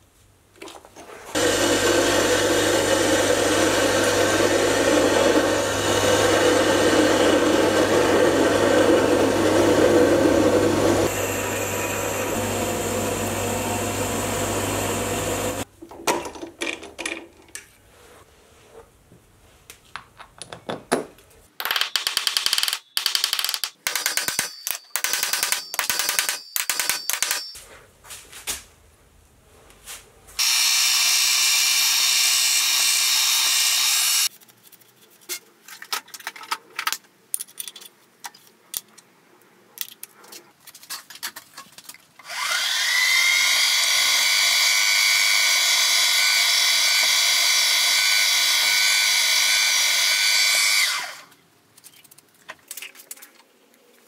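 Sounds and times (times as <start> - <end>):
lathe drilling metal: 1.4 - 15.6, 30.4 - 34.3, 42.3 - 51.1
small metal parts clinking: 21.6 - 27.6, 35.8 - 38.9.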